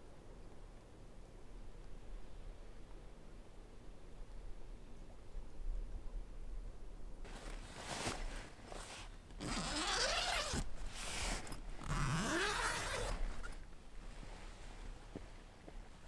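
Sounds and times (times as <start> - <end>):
fabric rustling: 7.2 - 16.0
tent zipper being pulled open: 7.3 - 13.6.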